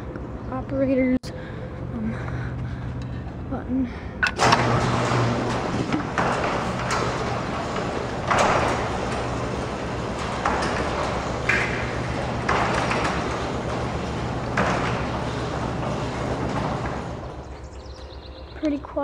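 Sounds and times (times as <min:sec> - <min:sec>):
garage door motor drone: 0:01.3 - 0:18.6
chain and door rattling: 0:04.2 - 0:18.2
door clunks: 0:04.2 - 0:18.7.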